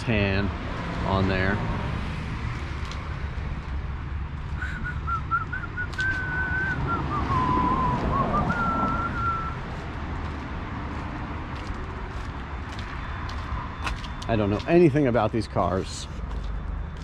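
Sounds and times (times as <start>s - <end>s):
person whistling a tune: 4.6s - 9.6s.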